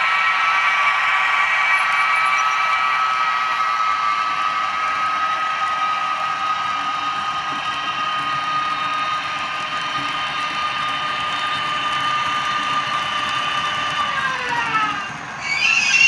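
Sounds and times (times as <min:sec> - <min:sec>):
model locomotive whine: 0:00.0 - 0:16.0
wagons rolling on track: 0:05.0 - 0:16.0.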